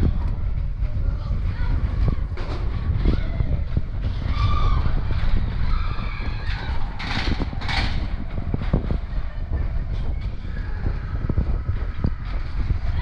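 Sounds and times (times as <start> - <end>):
roller coaster rumbling on track: 0.0 - 13.0.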